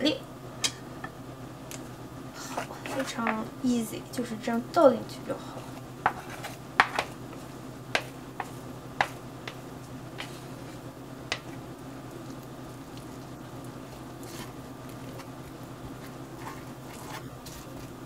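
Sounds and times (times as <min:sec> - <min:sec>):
steady low hum: 0:00.0 - 0:18.0
chopsticks tapping plastic bowl: 0:06.8 - 0:07.1, 0:08.0 - 0:09.6.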